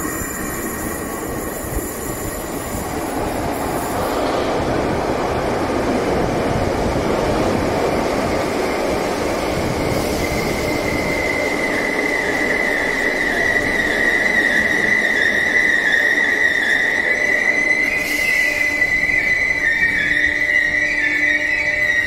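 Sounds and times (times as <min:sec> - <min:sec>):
high-pitched wheel squeal: 0:00.0 - 0:04.3, 0:10.0 - 0:22.0
electric train rumbling: 0:00.0 - 0:22.0.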